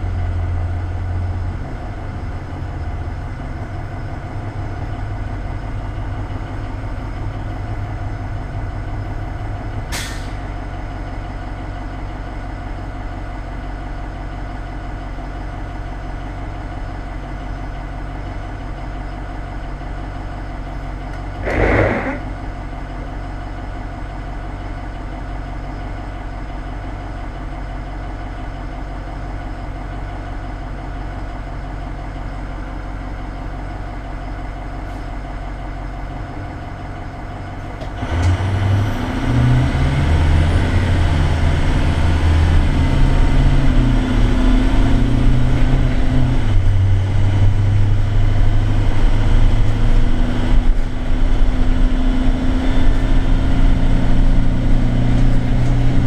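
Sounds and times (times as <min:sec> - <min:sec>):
diesel bus engine idling: 0:00.0 - 0:56.0
bus engine revving and upshifting: 0:21.4 - 0:22.3, 0:37.8 - 0:56.0.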